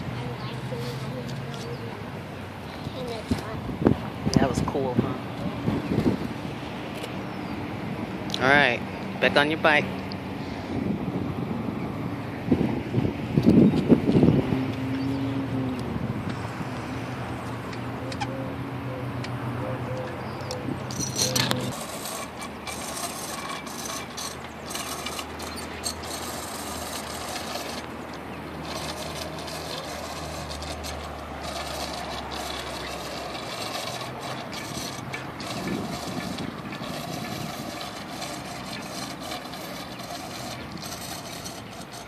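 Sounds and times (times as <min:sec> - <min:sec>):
wind buffeting microphone: 0:00.0 - 0:09.0, 0:09.9 - 0:42.0
bicycle tyres rolling on asphalt: 0:00.0 - 0:42.0.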